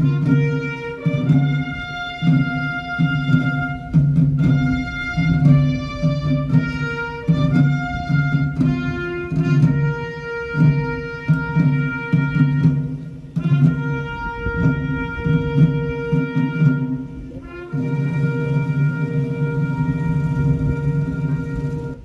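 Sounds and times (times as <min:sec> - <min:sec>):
orchestral music: 0:00.0 - 0:22.0
pulsing bass line: 0:19.7 - 0:22.0.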